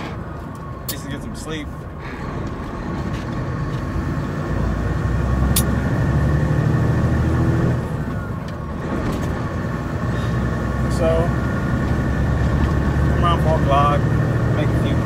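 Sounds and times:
truck diesel engine running: 1.4s - 15.0s.

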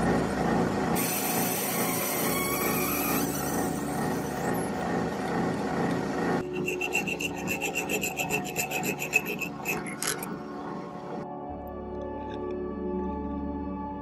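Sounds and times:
lathe drilling into brass: 1.0s - 4.8s, 6.5s - 10.2s
hand file rasping on metal: 6.5s - 10.3s.

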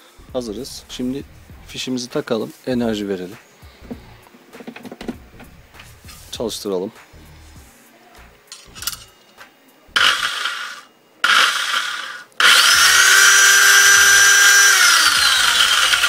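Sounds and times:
circular saw motor whine: 10.0s - 16.0s.

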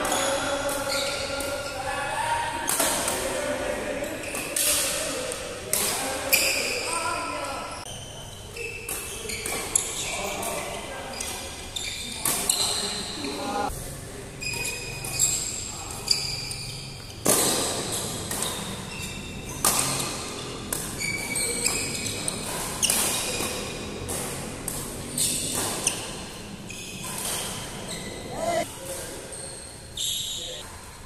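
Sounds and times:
shoes squeaking on court: 0.0s - 1.8s, 5.4s - 13.7s, 14.4s - 30.7s
rackets hitting shuttlecock: 2.6s - 3.4s, 17.2s - 27.9s.

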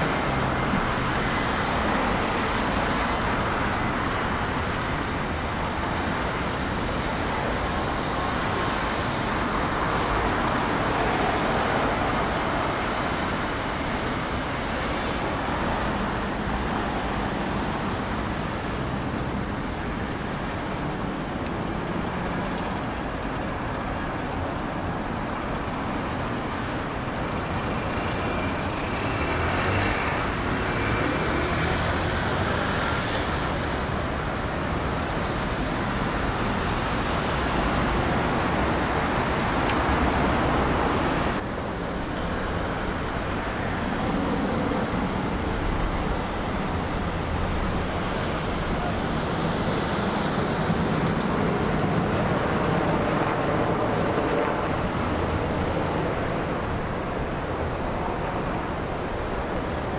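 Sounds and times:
city road traffic: 0.0s - 59.9s.

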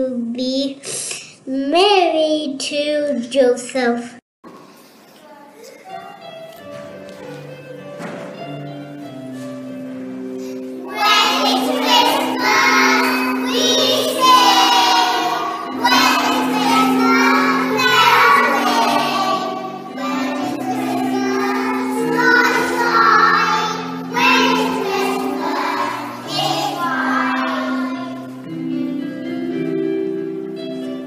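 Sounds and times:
instrumental accompaniment: 5.7s - 31.0s
children singing in unison: 10.8s - 28.4s.

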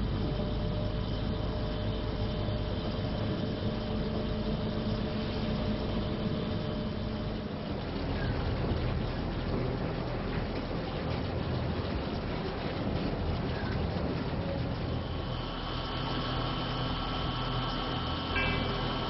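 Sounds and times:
machinery droning: 0.0s - 19.0s
faint held tones: 17.5s - 19.0s.

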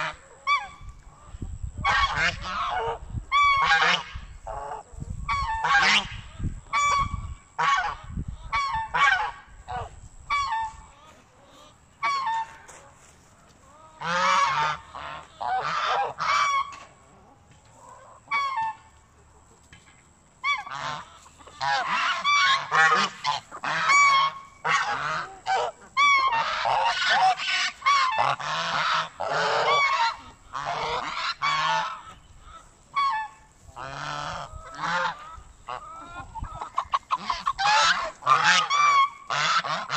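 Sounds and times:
geese honking: 0.0s - 19.4s, 20.4s - 39.9s.

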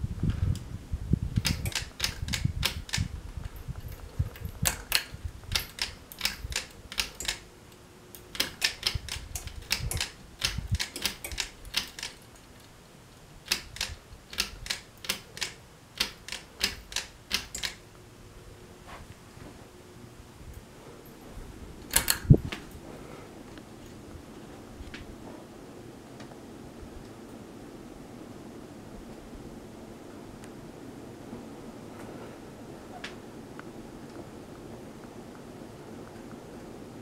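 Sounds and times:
ceiling fan pull-chain clicks: 1.3s - 18.0s, 20.5s - 22.8s.

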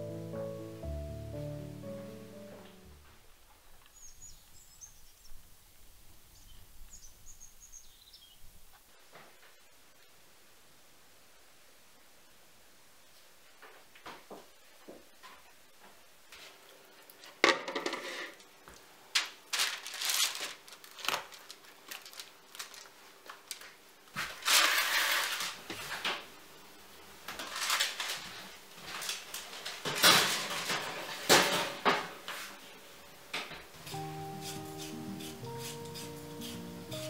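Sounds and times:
kitchenware knocking and clanking: 17.4s - 18.3s
rustling: 19.2s - 26.0s.

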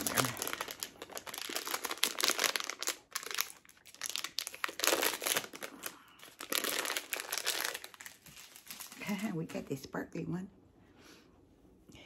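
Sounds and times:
plastic bag crinkling: 0.0s - 9.6s.

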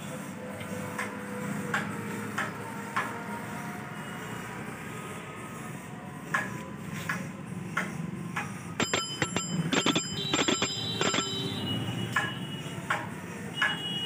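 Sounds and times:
bicycle bell ringing: 8.8s - 12.3s
scattered clicks: 8.8s - 13.8s.

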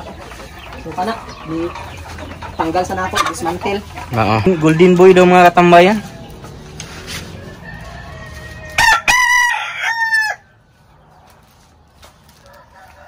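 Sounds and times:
rooster crowing: 7.2s - 10.5s, 12.4s - 13.0s.

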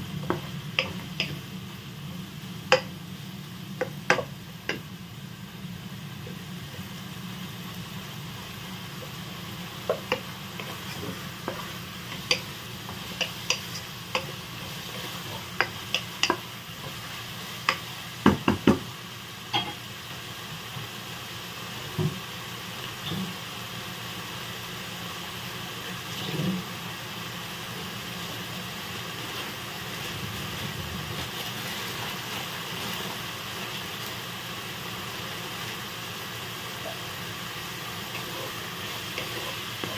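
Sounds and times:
food sizzling in oil: 0.0s - 39.9s
wooden spatula scraping a pan: 9.9s - 17.8s, 38.1s - 39.9s.

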